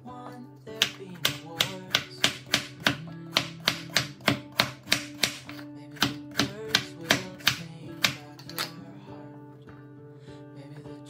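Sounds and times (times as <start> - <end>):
background music: 0.0 - 11.0
knife chopping on wooden board: 0.8 - 8.7.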